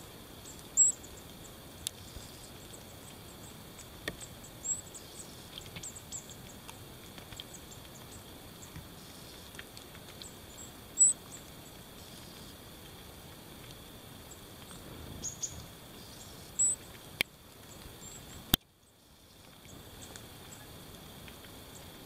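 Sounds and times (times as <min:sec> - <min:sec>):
songbirds high calls: 0:00.0 - 0:03.5, 0:04.1 - 0:06.7, 0:10.2 - 0:12.6, 0:15.2 - 0:16.9, 0:17.7 - 0:18.4.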